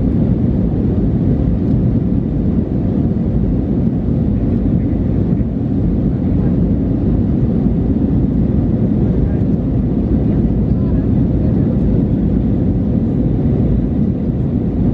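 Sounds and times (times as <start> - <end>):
jet engine rumble in cabin: 0.0 - 14.9
rushing airflow: 13.2 - 14.9.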